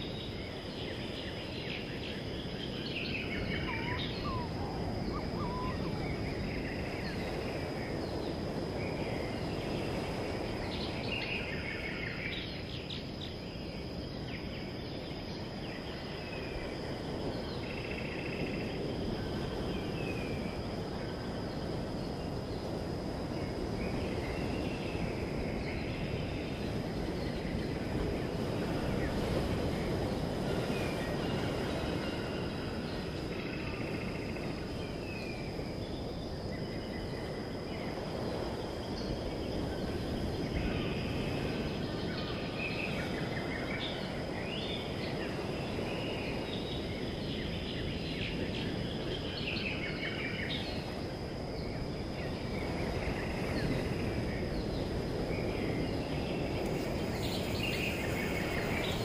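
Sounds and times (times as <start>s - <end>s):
insect high-pitched drone: 0.0s - 59.0s
birds chirping: 3.0s - 7.5s, 56.5s - 59.0s.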